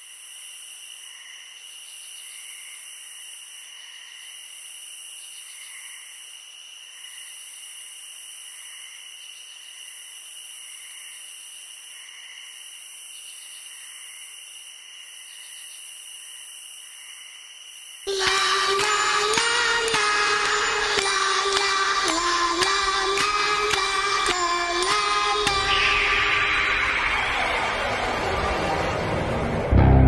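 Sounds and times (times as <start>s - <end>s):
insects chirping and buzzing: 0.0s - 27.1s
soft pulsing chirp: 18.1s - 28.2s.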